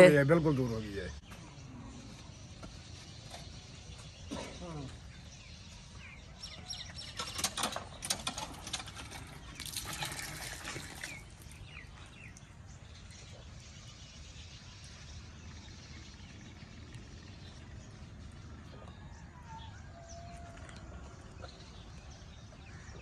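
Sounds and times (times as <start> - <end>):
birds chirping: 0.0 - 23.0
water pouring and splashing: 8.4 - 12.0.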